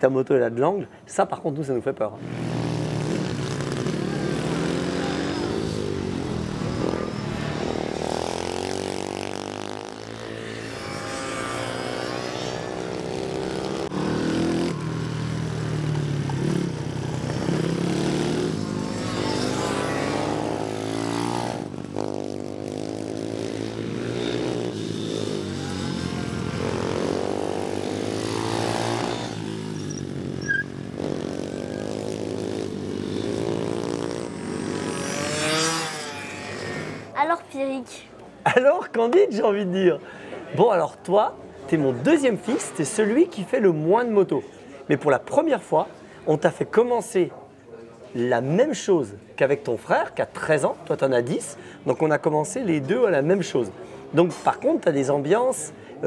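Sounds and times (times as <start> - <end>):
mini motorcycle engines revving: 2.2 - 37.2.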